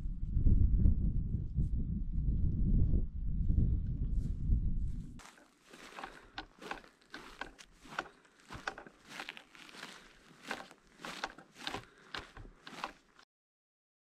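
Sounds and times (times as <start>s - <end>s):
footsteps in dry grass: 5.2s - 13.2s.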